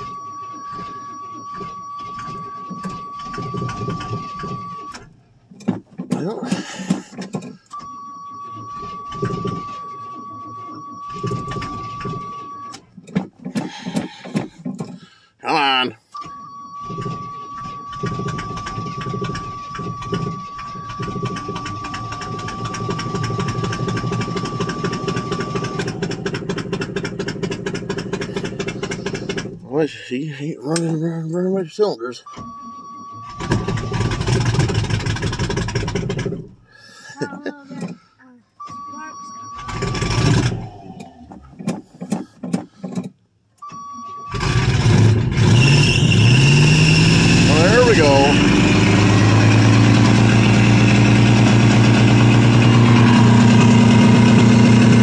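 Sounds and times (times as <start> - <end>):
car engine running roughly: 0.0 - 7.8, 8.6 - 15.9, 16.8 - 31.2, 33.3 - 38.0, 39.6 - 43.2, 44.3 - 55.0
starter motor cranking: 0.0 - 38.8, 39.5 - 43.7, 44.3 - 55.0
dashboard warning buzzer: 47.4 - 49.9.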